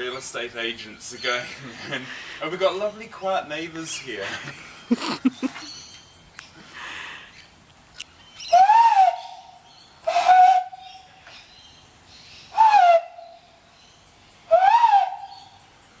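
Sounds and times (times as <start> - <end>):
hooting bird call through hands: 8.4 - 11.1, 14.5 - 15.6.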